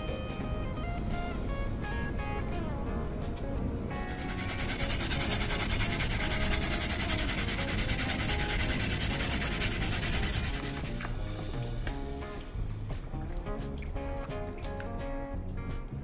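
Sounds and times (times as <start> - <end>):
background music: 0.0 - 16.0
rasping rubbing noise: 4.0 - 11.2.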